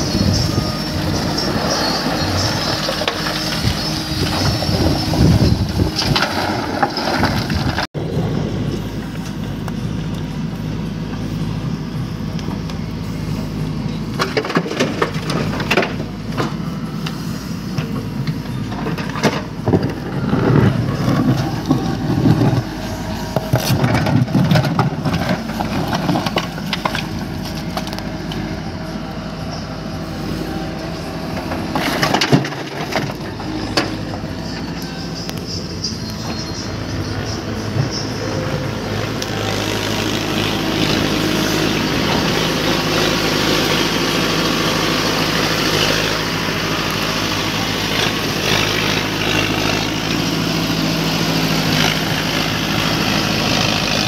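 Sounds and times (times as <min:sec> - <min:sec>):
backhoe diesel engine running: 0:00.0 - 0:54.0
bucket scraping through mud and stones: 0:01.0 - 0:07.9.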